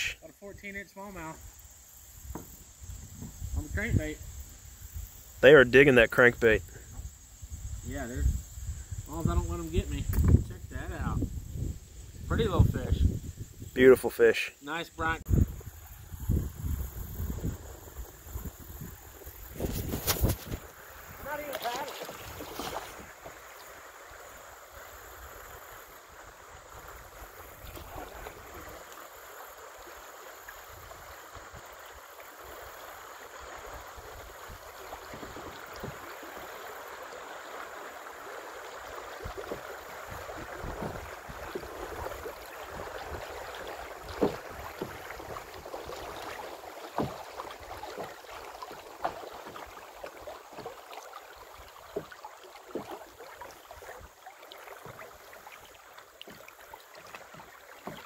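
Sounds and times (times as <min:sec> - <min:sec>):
creek water rushing and splashing: 0:00.0 - 0:58.0.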